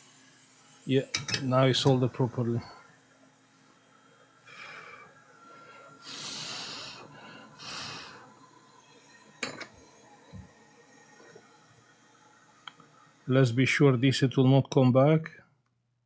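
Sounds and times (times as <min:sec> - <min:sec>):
person breathing heavily: 0:04.4 - 0:08.4.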